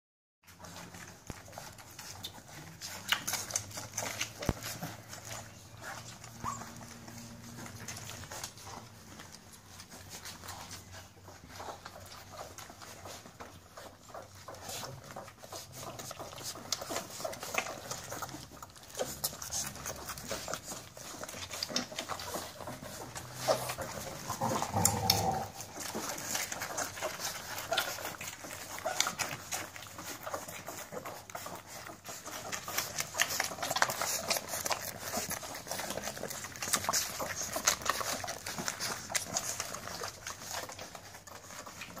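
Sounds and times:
puppies suckling wet smacking: 0:00.4 - 0:42.0.

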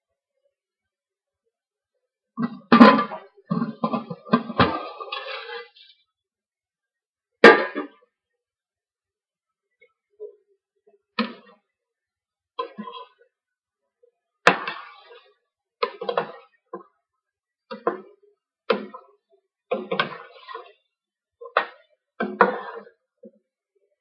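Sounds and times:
metal spoon scraping steel pot: 0:03.8 - 0:05.8.

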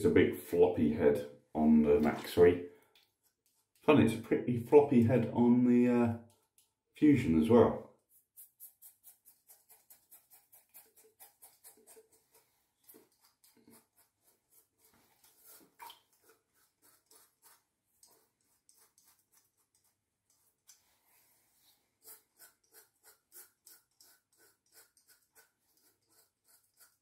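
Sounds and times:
razor scraping stubble: 0:08.1 - 0:20.7, 0:22.0 - 0:27.0.

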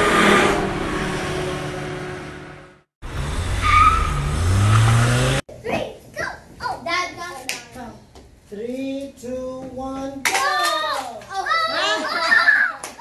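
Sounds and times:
car engine revving: 0:00.0 - 0:05.4
race car engine passing: 0:00.0 - 0:05.4
tire squeal: 0:03.2 - 0:05.4.

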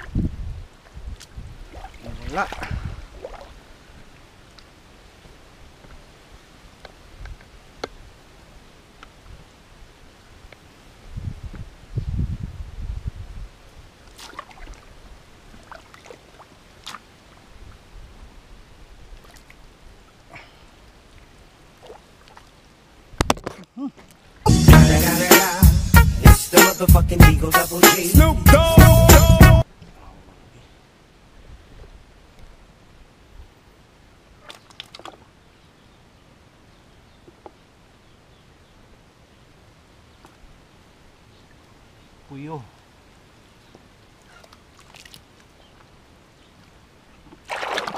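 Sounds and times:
small splashes of muddy water: 0:01.1 - 0:04.8, 0:14.0 - 0:17.8, 0:19.0 - 0:22.7, 0:34.3 - 0:35.4, 0:43.8 - 0:47.9
hands splashing in muddy water: 0:01.7 - 0:03.6, 0:14.1 - 0:14.9, 0:44.3 - 0:45.5, 0:47.3 - 0:47.9.

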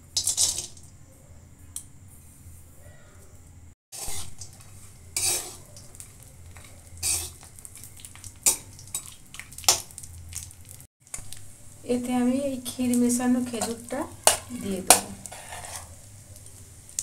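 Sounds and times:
light sizzle: 0:00.0 - 0:02.7, 0:03.4 - 0:17.0
metal spatula scraping pan: 0:04.0 - 0:07.5, 0:13.3 - 0:16.0.

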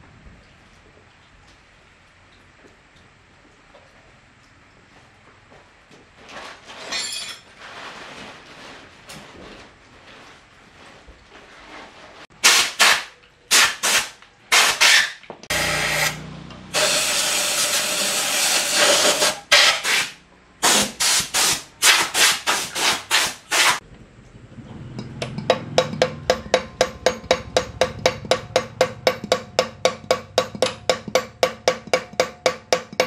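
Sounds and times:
wood sanded by hand: 0:16.8 - 0:23.8.

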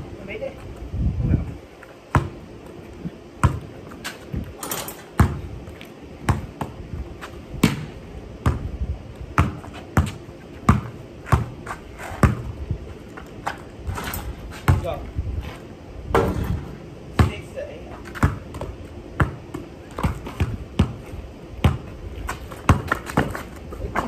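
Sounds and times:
basketball bouncing on concrete: 0:02.1 - 0:02.4, 0:03.4 - 0:04.0, 0:05.1 - 0:05.5, 0:06.2 - 0:06.8, 0:07.6 - 0:08.7, 0:09.3 - 0:12.5, 0:14.6 - 0:15.1, 0:16.1 - 0:24.0.

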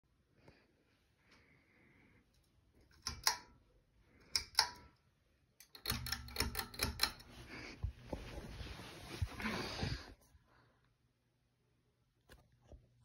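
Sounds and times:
pull-chain switch clicking: 0:02.9 - 0:03.5, 0:04.3 - 0:04.9, 0:05.6 - 0:07.3.

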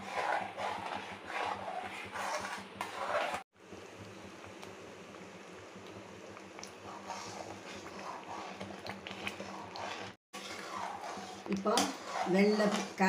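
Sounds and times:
spoon scraping pan: 0:00.0 - 0:03.4, 0:06.8 - 0:13.0
thick mixture simmering and popping: 0:00.0 - 0:13.0.

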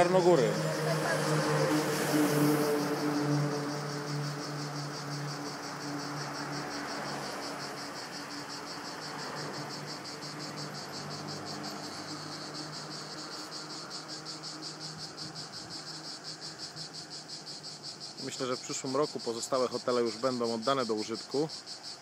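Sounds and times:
cicadas chirring: 0:00.0 - 0:22.0.

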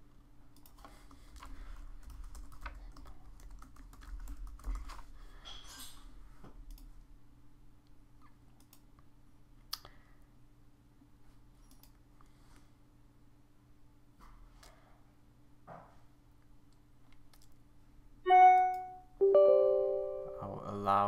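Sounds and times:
computer keyboard typing: 0:00.6 - 0:05.0.

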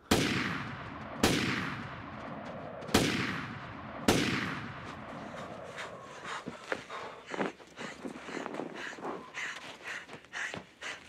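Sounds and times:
echoing pistol shots: 0:00.0 - 0:06.0
footsteps crunching in snow: 0:04.8 - 0:10.5.

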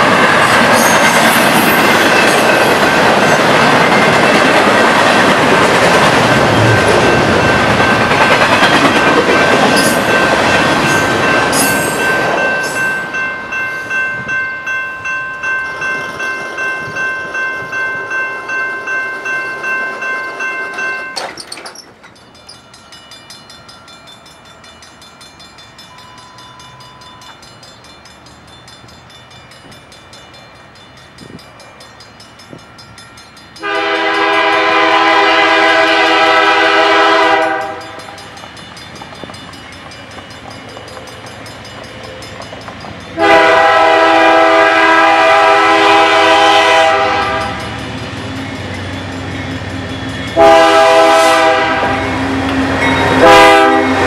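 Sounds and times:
locomotive engine and wheel rumble: 0:20.3 - 0:33.4
locomotive air horn blasts: 0:33.6 - 0:38.0, 0:43.2 - 0:47.6, 0:50.4 - 0:52.2, 0:53.1 - 0:54.0.

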